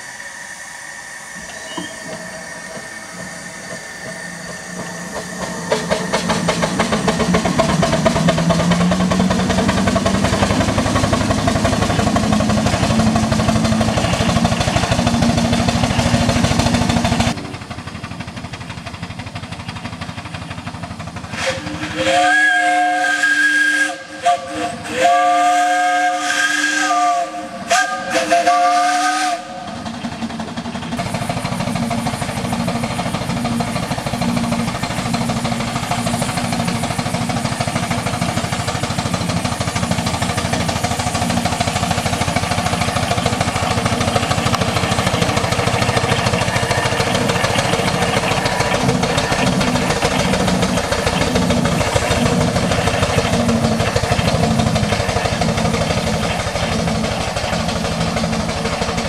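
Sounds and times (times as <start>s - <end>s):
steam whistle blasts: 0.0s - 16.6s, 21.3s - 29.8s
steam engine exhaust beats: 0.0s - 59.0s.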